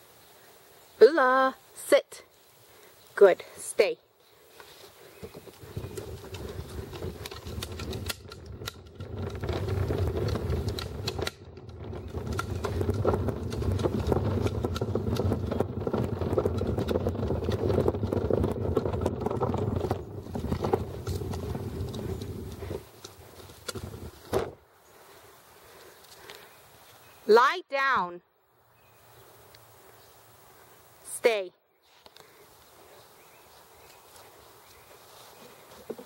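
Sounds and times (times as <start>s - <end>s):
footsteps: 4.3s - 27.0s, 31.8s - 36.0s.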